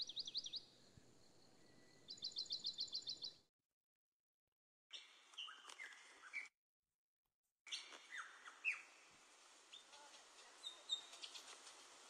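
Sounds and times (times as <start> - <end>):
small bird chirping: 0.0 - 0.7, 1.5 - 3.5, 4.9 - 6.5, 7.7 - 9.0, 9.7 - 11.7
outdoor background hiss: 0.0 - 3.3, 7.9 - 12.0.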